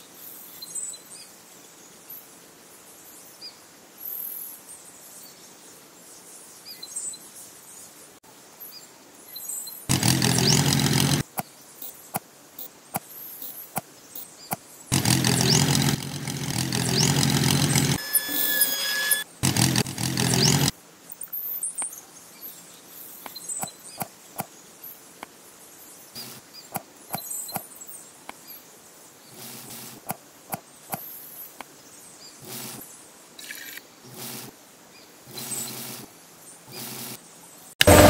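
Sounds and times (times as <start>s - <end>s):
tractor engine running: 9.9s - 11.3s, 14.9s - 20.7s, 37.8s - 38.0s
faint bird chirps: 11.4s - 15.6s.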